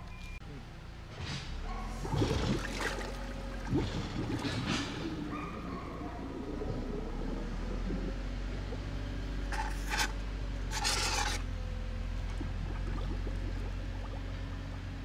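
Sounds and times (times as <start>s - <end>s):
steady low rumble: 1.9s - 9.8s.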